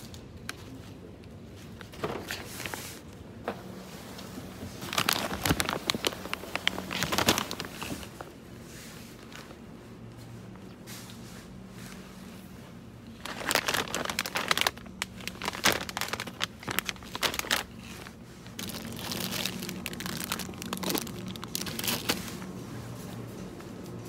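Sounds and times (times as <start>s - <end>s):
crinkling and crunching: 4.0s - 10.8s, 12.8s - 24.0s.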